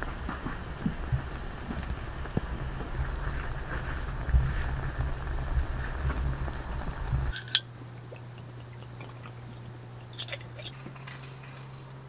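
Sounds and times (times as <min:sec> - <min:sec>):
broth bubbling at a boil: 0:00.0 - 0:12.0
sharp clink: 0:07.3 - 0:07.7.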